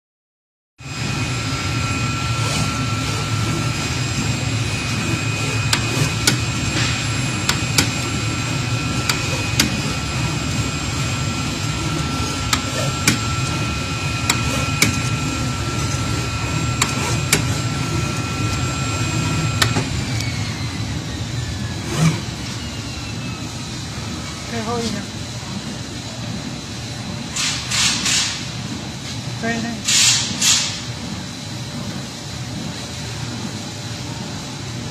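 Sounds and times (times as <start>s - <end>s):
high steady whine: 0.8s - 34.9s
low machine hum: 0.8s - 34.9s.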